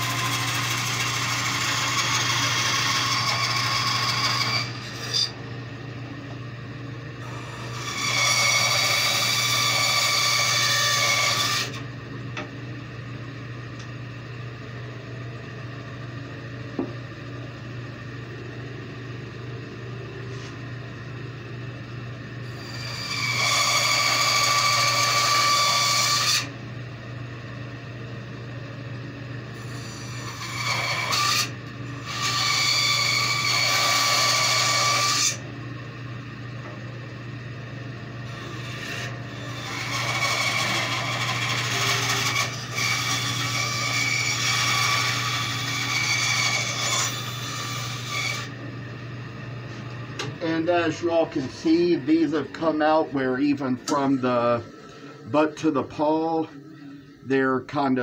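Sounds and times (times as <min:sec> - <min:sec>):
bandsaw cutting wood: 0:00.0 - 0:05.4, 0:07.2 - 0:11.8, 0:22.5 - 0:26.5, 0:29.6 - 0:35.4, 0:38.3 - 0:48.6
steady low hum: 0:00.0 - 0:23.4, 0:26.4 - 0:32.6, 0:35.4 - 0:42.7, 0:48.5 - 0:58.0.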